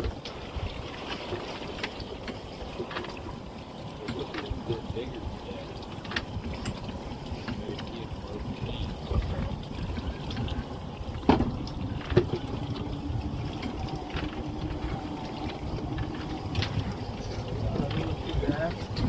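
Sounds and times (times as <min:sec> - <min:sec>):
water splashing against hull: 0:00.0 - 0:19.0
wind: 0:00.0 - 0:19.0.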